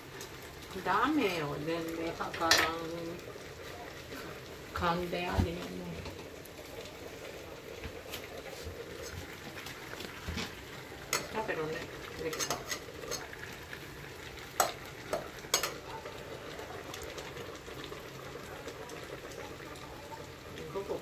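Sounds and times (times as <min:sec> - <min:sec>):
pot simmering with sizzle: 0:00.0 - 0:21.0
utensil clinking against pot: 0:12.3 - 0:13.3, 0:14.6 - 0:15.8.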